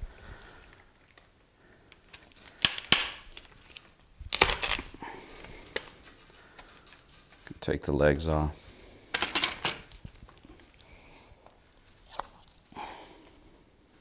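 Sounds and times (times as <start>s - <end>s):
lopper cracking through bone: 1.9s - 7.5s.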